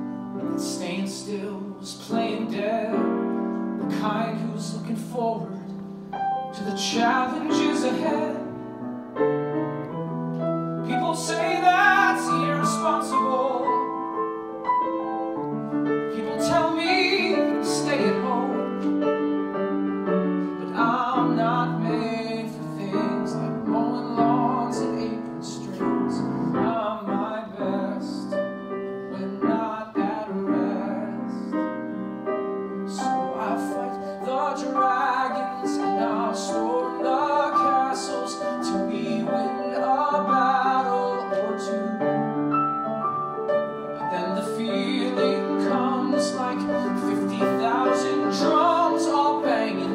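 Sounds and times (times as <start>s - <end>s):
piano accompaniment: 0.0s - 49.9s
man singing long notes: 10.9s - 13.9s.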